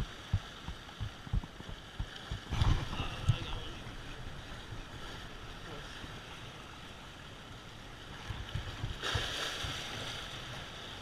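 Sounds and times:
wind gusting on microphone: 0.0s - 5.5s
sea waves washing against rocks: 0.0s - 11.0s
wave splashing: 0.0s - 11.0s.

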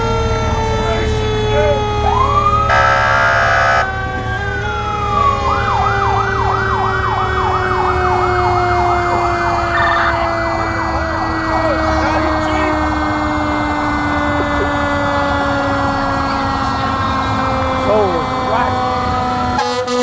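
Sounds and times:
low engine rumble: 0.0s - 19.6s
low siren tone sliding down: 0.0s - 20.0s
siren wailing and yelping: 0.0s - 20.0s
air horn blast: 2.7s - 3.9s, 19.6s - 20.0s.

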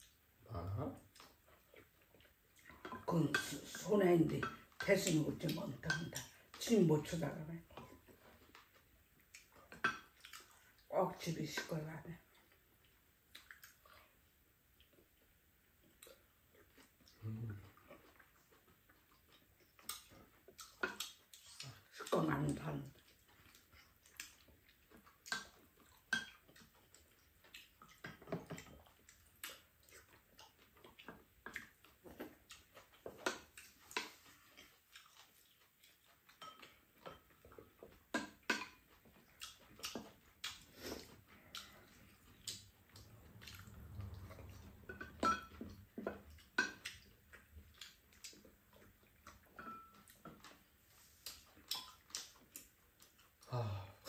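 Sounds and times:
chewing and slurping: 0.8s - 10.9s, 11.6s - 54.0s
spoons clinking against bowls: 44.9s - 45.6s, 49.6s - 50.1s.

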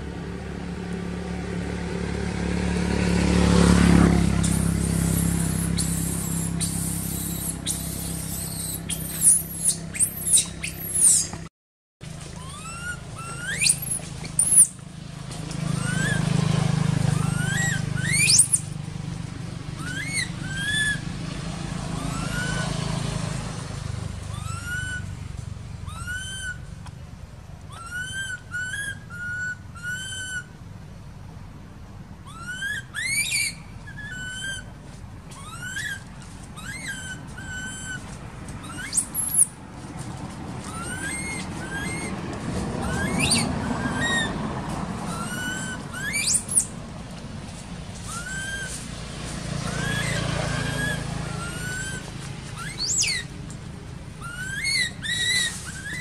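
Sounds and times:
high-pitched squeals: 4.3s - 11.5s
baby monkey whimpering: 4.4s - 11.4s, 12.4s - 14.8s, 15.7s - 16.2s, 17.1s - 18.7s, 19.8s - 21.0s, 22.0s - 22.6s, 24.3s - 25.0s, 25.9s - 26.6s, 27.7s - 30.4s, 32.3s - 34.6s, 35.4s - 36.0s, 36.6s - 38.0s, 38.6s - 39.6s, 40.7s - 42.2s, 42.8s - 44.3s, 45.1s - 46.7s, 48.1s - 48.8s, 49.6s - 53.3s, 54.2s - 56.0s.

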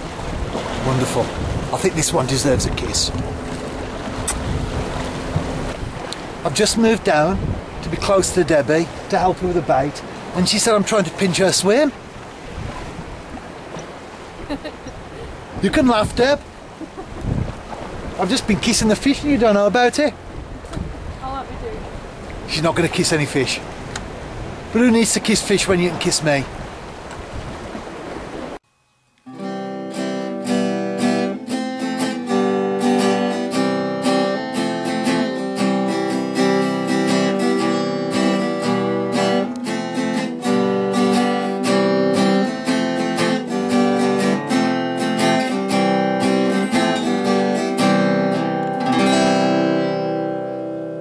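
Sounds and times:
wind and sea noise: 0.0s - 28.6s, 29.9s - 51.0s
acoustic guitar plucking: 1.7s - 11.9s, 28.6s - 51.0s.

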